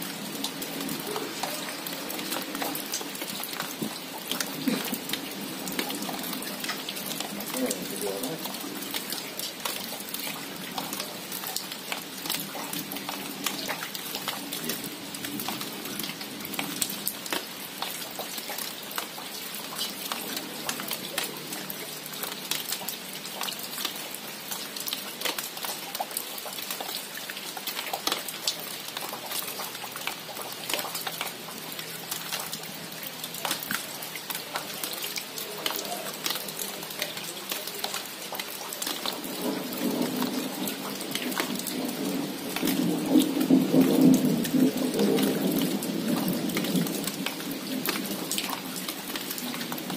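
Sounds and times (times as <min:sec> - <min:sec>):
rain falling on leaves: 0:00.0 - 0:49.9
rumble of thunder: 0:39.2 - 0:47.9.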